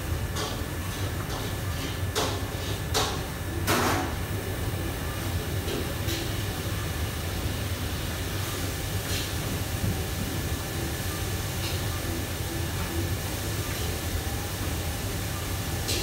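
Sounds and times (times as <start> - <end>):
extraction hood and fans rumbling: 0.0 - 16.0
utensils and cookware clattering: 0.3 - 4.2.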